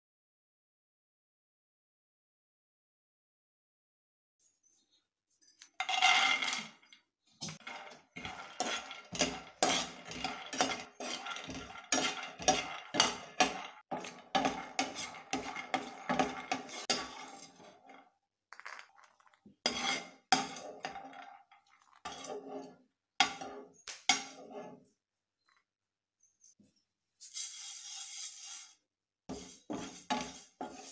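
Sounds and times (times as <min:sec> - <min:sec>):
nuts rattling in frying pan: 0:05.8 - 0:06.8, 0:07.6 - 0:17.4, 0:18.5 - 0:19.1.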